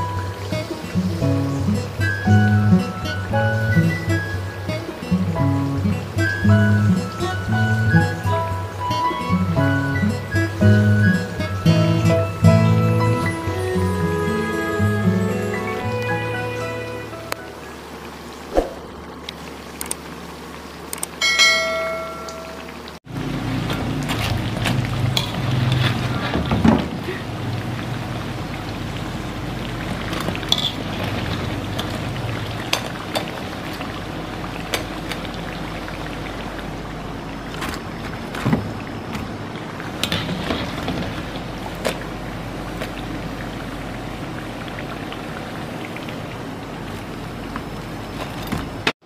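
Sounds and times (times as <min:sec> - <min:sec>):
deep-frying sizzle: 0:00.0 - 0:49.0
ladle clinking against wok: 0:30.5 - 0:30.8.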